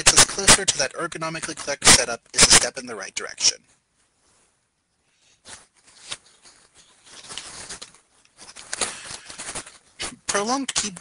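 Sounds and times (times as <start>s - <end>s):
soft rustling and clicking: 3.6s - 11.0s.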